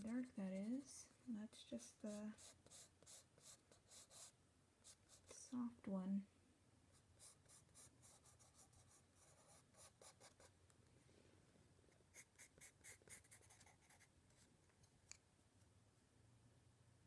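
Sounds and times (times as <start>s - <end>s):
pencil scratching on paper: 2.1s - 5.4s, 7.2s - 10.5s, 12.1s - 14.1s.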